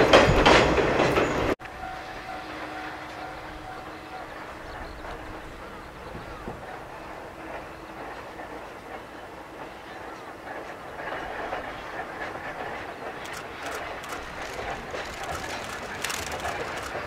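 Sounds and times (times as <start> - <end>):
electric locomotive rumble: 0.0 - 17.0
wheels clicking over rail joints: 4.6 - 17.0.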